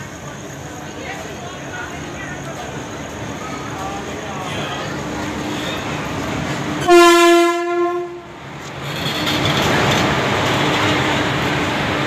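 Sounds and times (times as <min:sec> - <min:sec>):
train running noise: 0:00.0 - 0:12.0
locomotive horn blast: 0:06.8 - 0:08.3.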